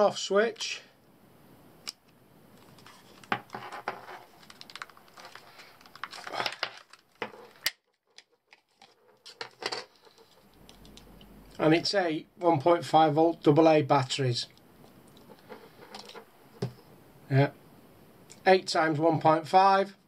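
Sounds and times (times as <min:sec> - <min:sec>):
plastic battery box clicks and scrapes: 0:02.6 - 0:11.1.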